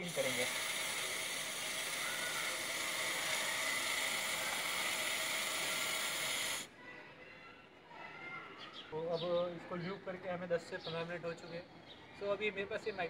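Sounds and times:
aerosol spray hissing: 0:00.0 - 0:06.7.

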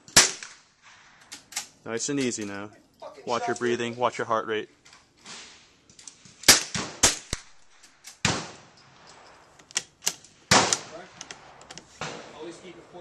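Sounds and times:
gunshots: 0:00.1 - 0:01.1, 0:06.3 - 0:09.2, 0:10.4 - 0:13.0.

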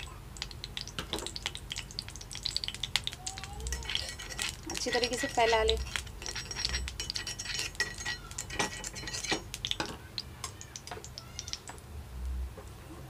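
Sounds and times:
metallic clinks from metal pan: 0:03.7 - 0:10.6.

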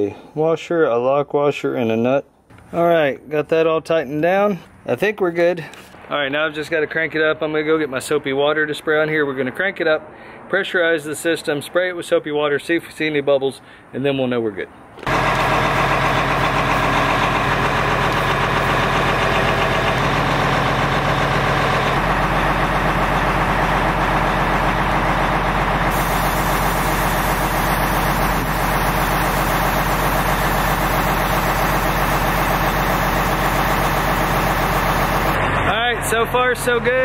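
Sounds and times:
truck diesel engine idling: 0:15.0 - 0:37.0.

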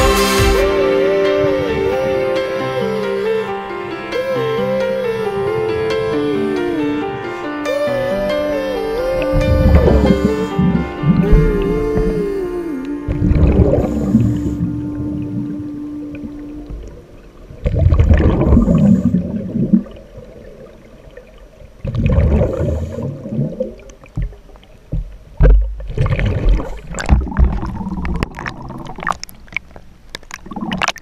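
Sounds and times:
sea water splashing: 0:00.0 - 0:31.0.

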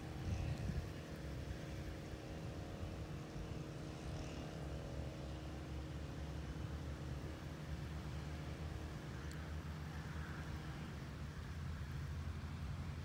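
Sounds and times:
wind rumble on microphone: 0:00.0 - 0:05.1
distant engine drone: 0:00.0 - 0:13.0.

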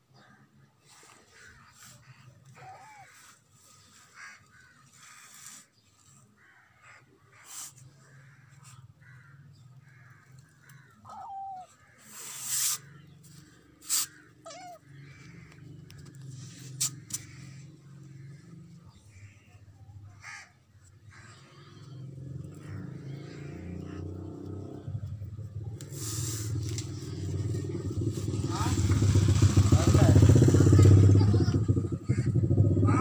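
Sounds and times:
crows cawing: 0:01.2 - 0:24.9, 0:32.0 - 0:33.0
kitten mewing: 0:13.8 - 0:15.0.

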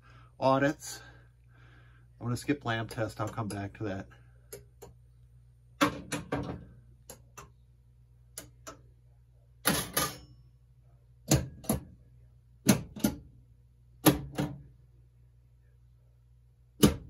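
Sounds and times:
pinball relays and solenoids clacking: 0:09.6 - 0:10.4.

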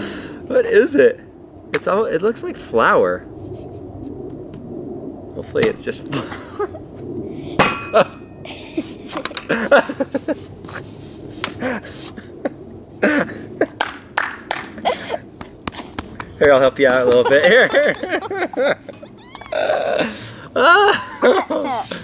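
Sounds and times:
boy coughing and laughing: 0:06.1 - 0:06.8, 0:17.0 - 0:22.0
man laughing: 0:06.1 - 0:07.0, 0:07.9 - 0:10.4, 0:11.6 - 0:13.8, 0:14.7 - 0:15.6, 0:16.4 - 0:22.0.

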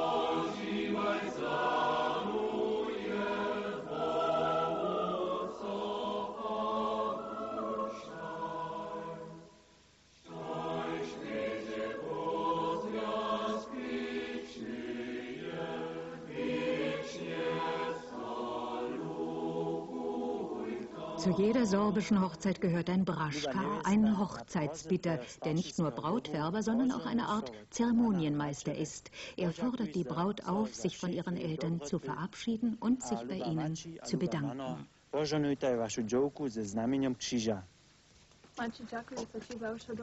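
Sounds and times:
choir singing: 0:00.0 - 0:24.2.

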